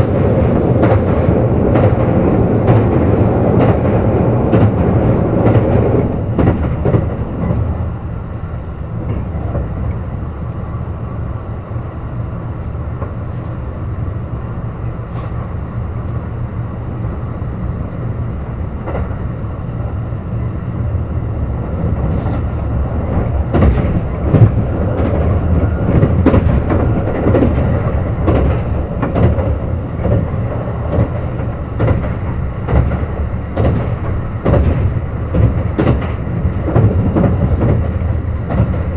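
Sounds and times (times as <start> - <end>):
clicks over the rails: 0.0 - 7.8, 9.0 - 10.6, 13.0 - 13.6, 18.8 - 19.3, 21.8 - 38.9
train rumbling along tracks: 0.0 - 38.9.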